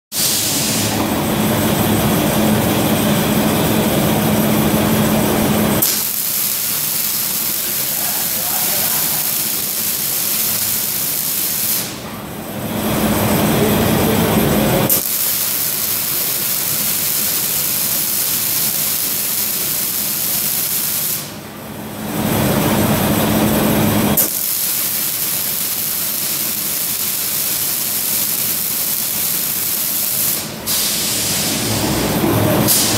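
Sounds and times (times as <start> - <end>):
machine hum: 0.4 - 32.9
welding arcs hissing and crackling: 5.3 - 12.1, 14.8 - 21.4, 24.2 - 31.8
sharp machine click: 5.8 - 11.9.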